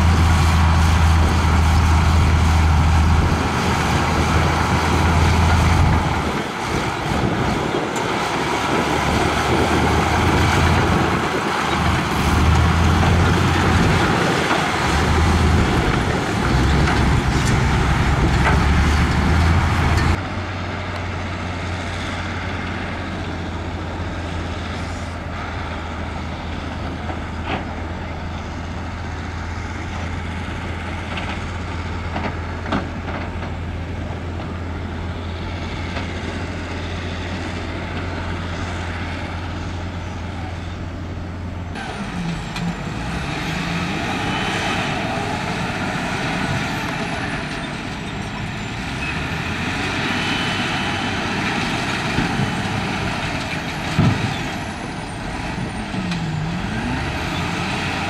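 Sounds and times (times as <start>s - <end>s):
diesel machinery engine: 0.0s - 58.0s.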